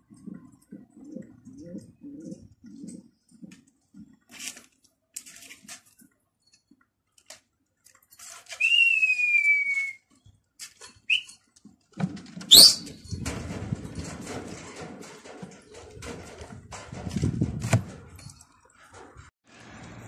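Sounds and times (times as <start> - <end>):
person whistling: 8.6 - 10.1, 11.1 - 11.4, 12.5 - 12.9.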